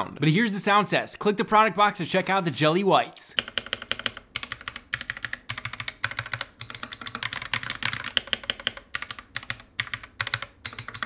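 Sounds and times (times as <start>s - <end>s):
mechanical keyboard typing: 2.1s - 2.7s, 3.4s - 11.0s.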